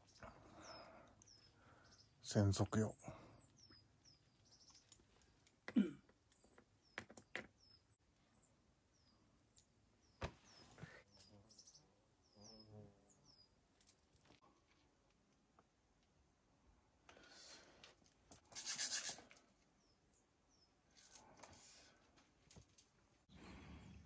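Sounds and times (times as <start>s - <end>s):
small bird chirping: 0.0s - 13.9s, 18.5s - 21.6s.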